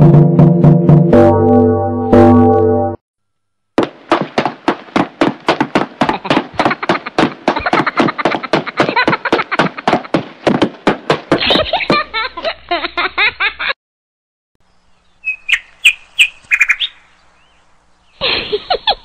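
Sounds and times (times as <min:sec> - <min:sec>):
treadmill belt knocking: 0:03.8 - 0:12.2.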